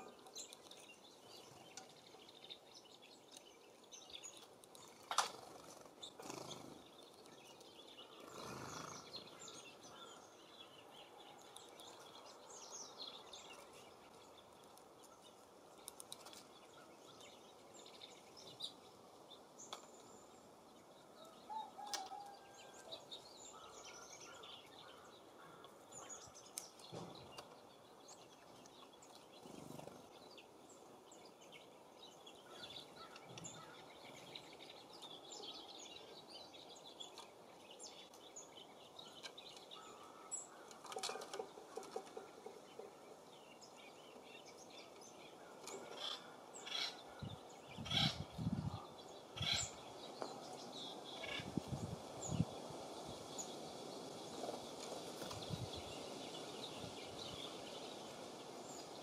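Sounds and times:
songbirds chirping: 0:00.0 - 0:59.0
wind hiss: 0:47.2 - 0:59.0.

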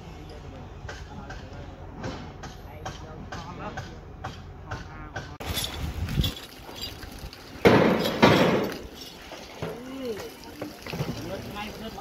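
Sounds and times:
hose water splashing: 0:05.4 - 0:12.0.

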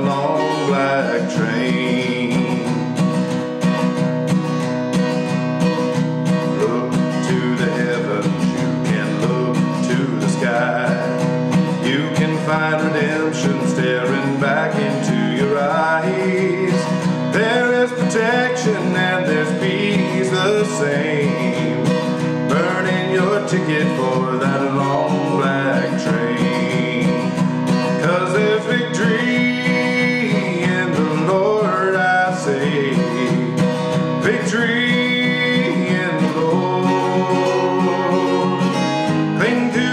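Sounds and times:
acoustic guitar: 0:00.0 - 0:39.9
man singing country song: 0:00.0 - 0:39.9.

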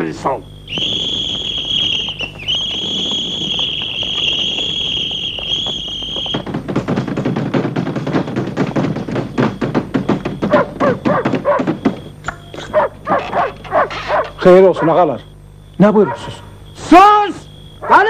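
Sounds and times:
police whistle blast: 0:00.7 - 0:06.5
boots running: 0:00.8 - 0:14.3.

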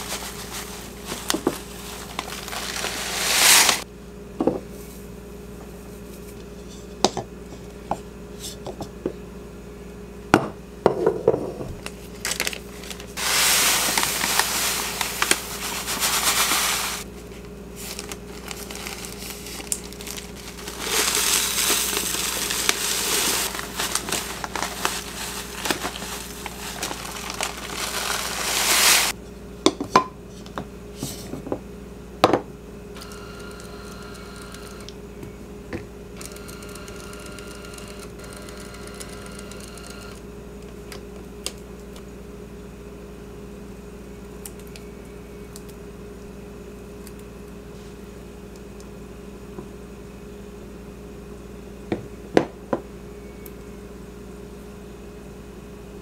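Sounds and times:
paper bag crinkling: 0:00.0 - 0:03.8, 0:11.8 - 0:29.2
tea leaves rustling pour: 0:00.0 - 0:03.8, 0:12.2 - 0:17.1, 0:17.8 - 0:29.2.

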